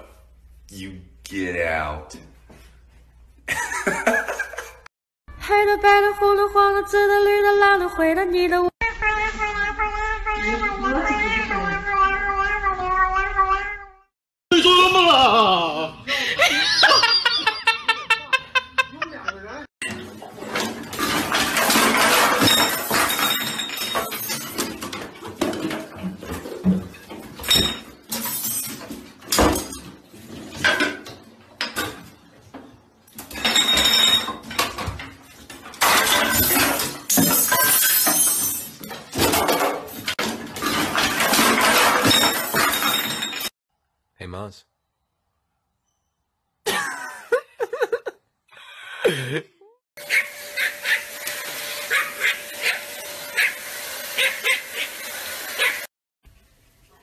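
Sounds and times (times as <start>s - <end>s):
clattering knocks and bangs: 19.8s - 43.5s
small dog yapping: 50.0s - 51.1s, 51.9s - 52.8s, 53.4s - 53.6s.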